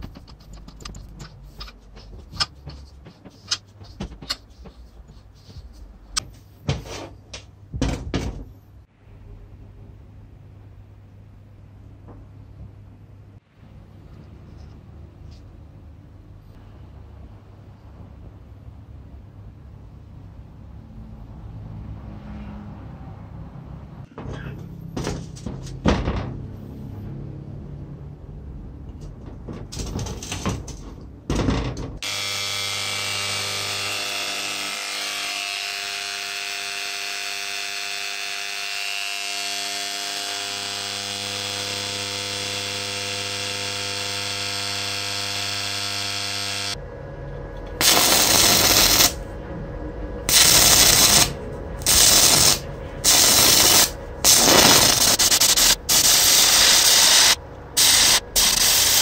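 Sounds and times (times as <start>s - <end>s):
electric chisel buzzing: 32.0s - 46.8s, 47.8s - 49.2s, 50.3s - 59.0s
welding arc crackling: 32.0s - 46.8s, 47.8s - 49.2s, 50.3s - 59.0s.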